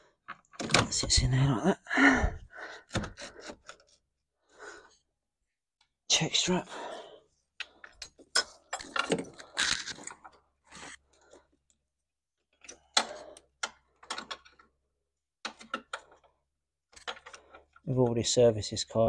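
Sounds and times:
metal and plastic parts clinking: 0:07.6 - 0:11.0, 0:12.6 - 0:14.7, 0:15.4 - 0:18.0.

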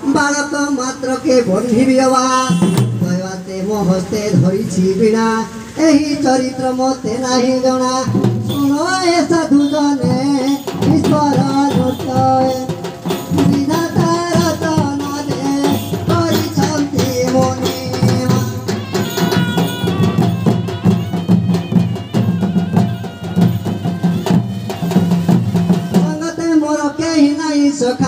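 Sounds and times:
rapid drum beating: 0:02.4 - 0:04.8, 0:08.0 - 0:27.2
reed pipe melody: 0:09.8 - 0:26.6.

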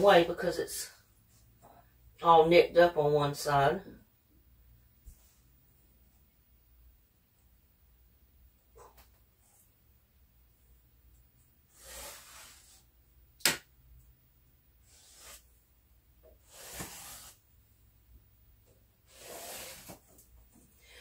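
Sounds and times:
marker scratching on wood: 0:14.9 - 0:15.5.

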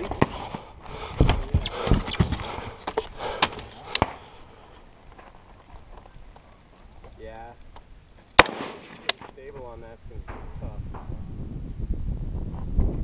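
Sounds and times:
footsteps on gravel: 0:00.0 - 0:07.2.

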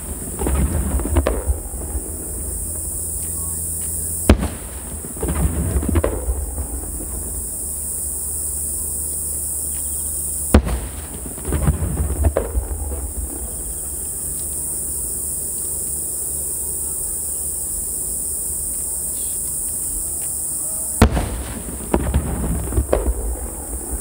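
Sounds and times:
firework shell boom: 0:00.0 - 0:07.8, 0:10.5 - 0:14.1, 0:21.0 - 0:24.0
fireworks crackling: 0:00.0 - 0:24.0
steady high hiss: 0:00.0 - 0:24.0.

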